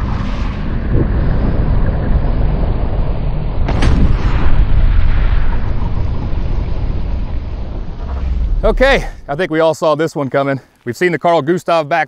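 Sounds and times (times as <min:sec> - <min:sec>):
long deep rumble: 0:00.0 - 0:09.8
recoilless rifle launch blast: 0:03.6 - 0:09.5.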